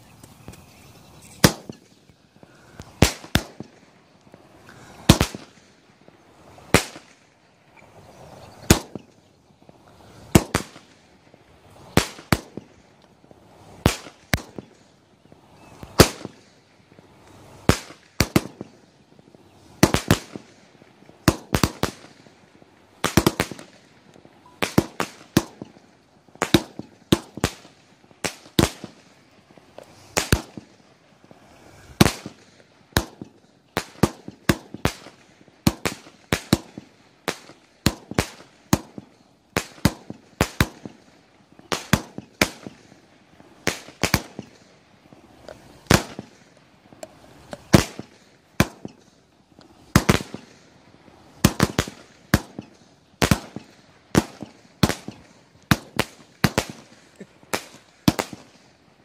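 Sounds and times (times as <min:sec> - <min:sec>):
firework cake shots cracking: 0:01.2 - 0:05.7, 0:08.6 - 0:09.2, 0:10.3 - 0:11.1, 0:11.9 - 0:12.8, 0:13.7 - 0:14.9, 0:15.8 - 0:16.5, 0:17.6 - 0:18.7, 0:19.8 - 0:22.3, 0:23.0 - 0:43.0, 0:43.6 - 0:44.7, 0:45.4 - 0:50.7, 0:51.4 - 0:58.8.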